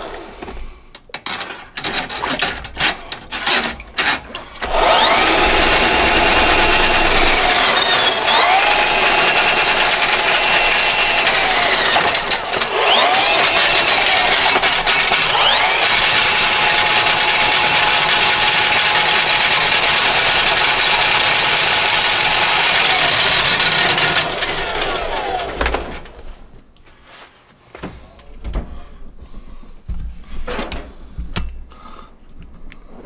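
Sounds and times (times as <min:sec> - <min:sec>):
drain snake motor whining: 0:04.6 - 0:25.6.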